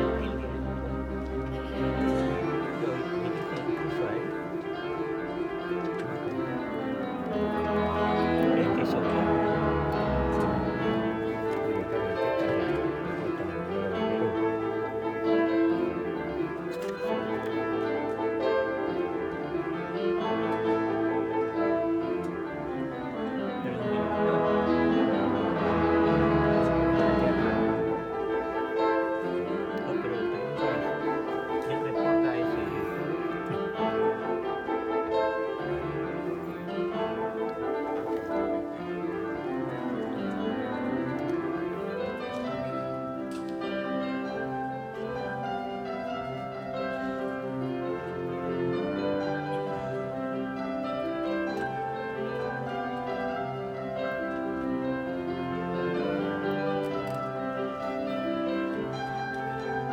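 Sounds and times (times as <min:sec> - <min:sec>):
orchestral strings and winds: 0:00.0 - 0:59.9
piano playing: 0:00.0 - 0:59.9.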